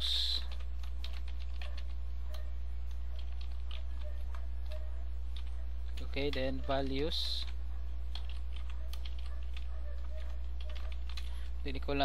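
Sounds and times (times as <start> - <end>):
keyboard typing: 0.0 - 12.0
steady low hum: 0.0 - 12.0.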